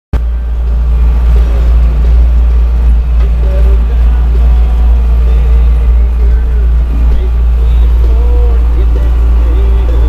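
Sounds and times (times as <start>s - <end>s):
tractor diesel engine rumbling: 0.1s - 10.0s.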